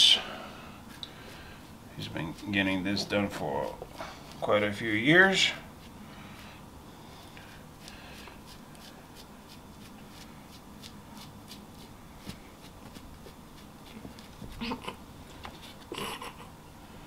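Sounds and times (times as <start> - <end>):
brush strokes through hair: 0.8 - 4.4, 5.3 - 14.8.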